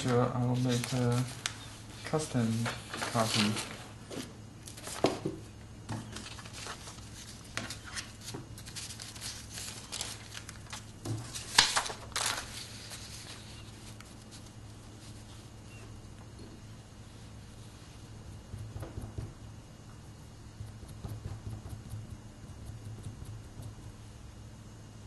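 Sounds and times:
paper rustling: 0.0s - 5.3s, 6.0s - 15.5s.

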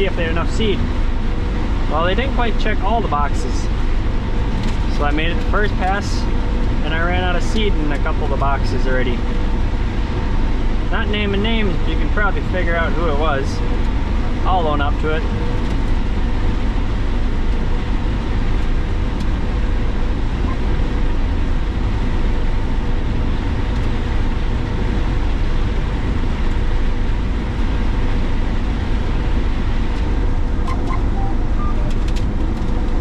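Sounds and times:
combine harvester running: 0.0s - 33.0s.

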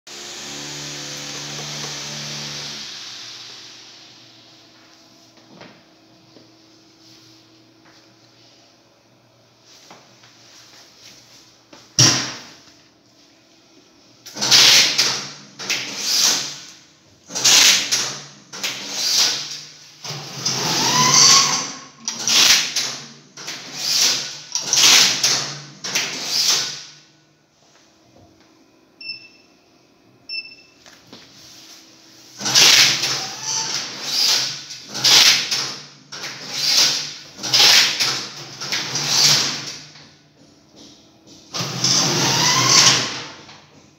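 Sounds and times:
rising machine whine: 0.1s - 4.9s
short electronic beeps: 30.3s - 30.8s.

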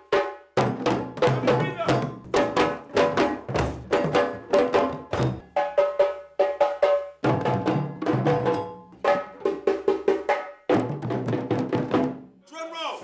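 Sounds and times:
hand drums playing: 0.0s - 12.2s.

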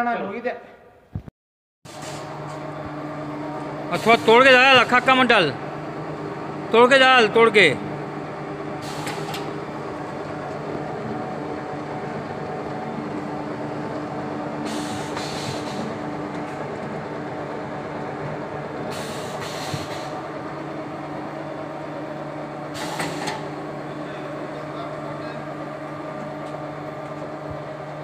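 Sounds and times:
machine motor and gear hum: 1.9s - 28.0s
rough hissy noise bursts: 14.6s - 16.0s, 18.9s - 20.2s.

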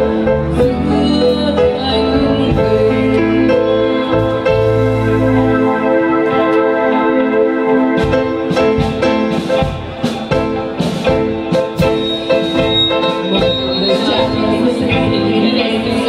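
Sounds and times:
keyboard chords: 0.0s - 16.0s
steady beat: 4.4s - 16.0s.

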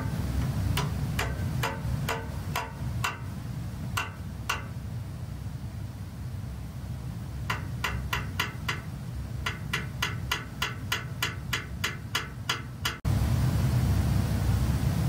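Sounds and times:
steady low rumble: 13.0s - 15.0s.

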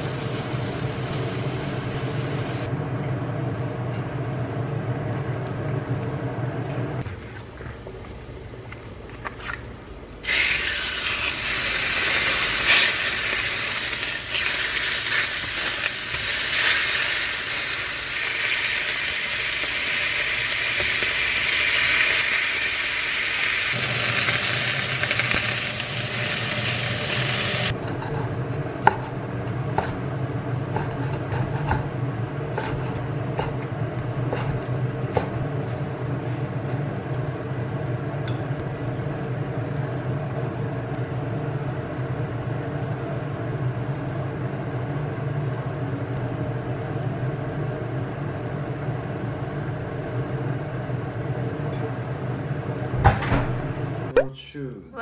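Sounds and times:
steady low hum: 0.0s - 55.0s
steak sizzling in frying pan: 10.2s - 27.7s.

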